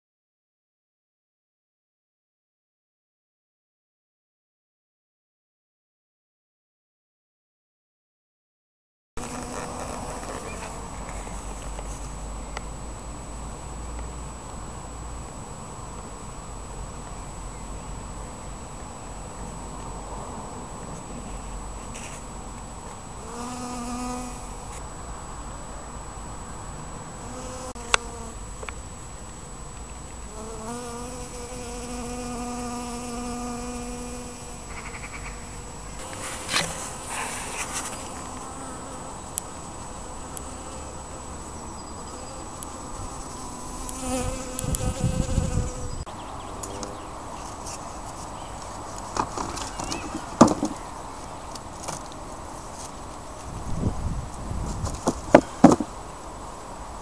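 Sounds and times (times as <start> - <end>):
bee buzzing: 9.2 - 17.5, 21.0 - 25.3, 26.9 - 47.0
knocks of hive lid: 49.2 - 50.8, 54.8 - 55.9.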